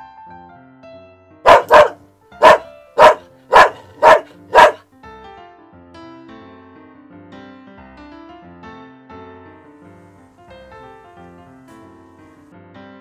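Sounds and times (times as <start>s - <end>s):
background music: 0.0s - 6.8s, 7.5s - 13.0s
dog barking: 1.5s - 4.8s.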